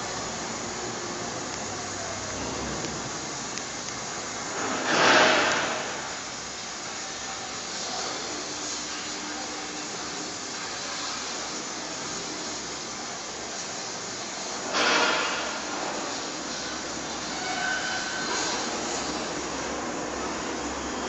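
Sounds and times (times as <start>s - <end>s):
sudden burst of noise: 4.5s - 6.3s.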